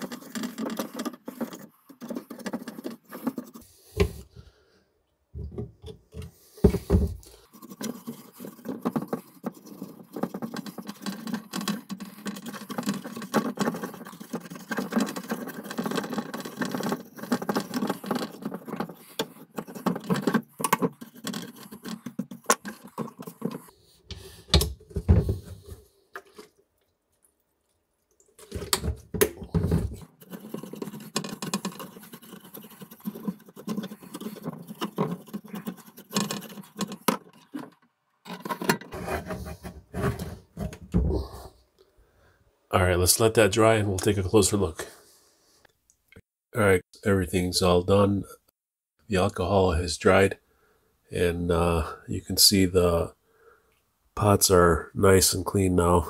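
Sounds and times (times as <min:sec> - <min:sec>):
brush scrubbing circuit board: 0:00.0 - 0:04.2, 0:06.4 - 0:26.4, 0:29.5 - 0:40.8.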